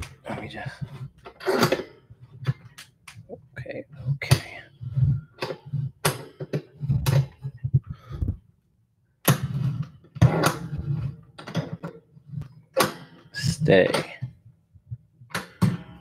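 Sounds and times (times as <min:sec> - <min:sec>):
microphone handling knocks and rubs: 0:06.8 - 0:08.5.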